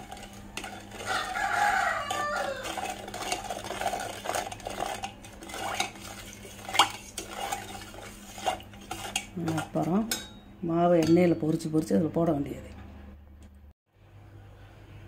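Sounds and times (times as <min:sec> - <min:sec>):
spoon scraping in pot: 0:00.0 - 0:10.4
spoon clinking against pot: 0:01.9 - 0:11.6.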